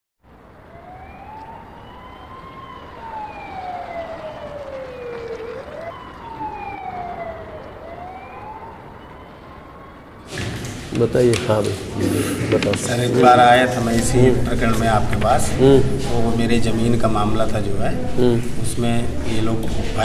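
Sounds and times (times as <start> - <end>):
police siren wailing: 0.3 - 10.3.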